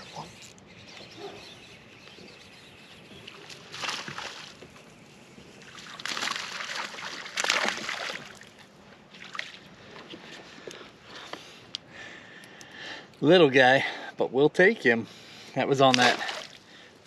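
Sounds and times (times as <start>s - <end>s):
fish splashing at water surface: 5.7s - 8.4s.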